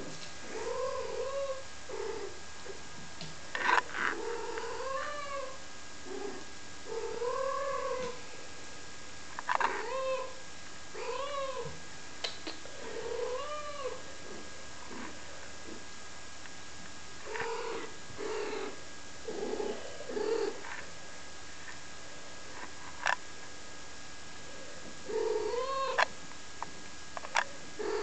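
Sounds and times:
kittens mewing: 25.1s - 26.1s.

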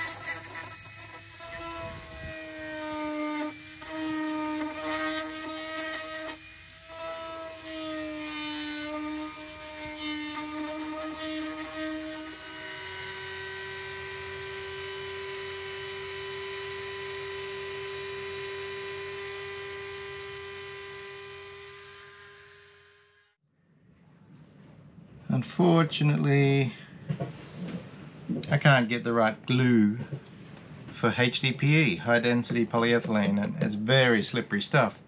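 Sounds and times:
rotary tool grinding plastic: 0.0s - 23.4s.

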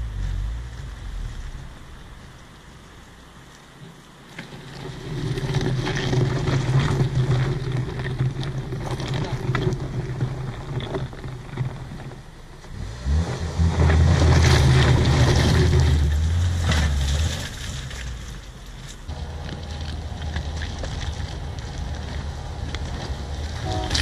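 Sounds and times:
car engine revving: 0.0s - 2.7s, 12.6s - 18.0s, 19.1s - 24.0s
tyres crunching on gravel: 0.0s - 24.0s.

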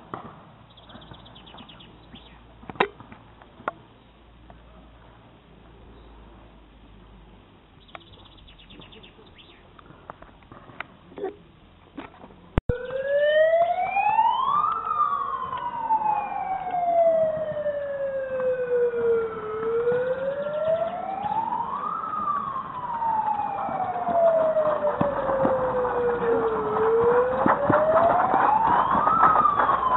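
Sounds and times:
siren wailing: 12.7s - 29.9s.

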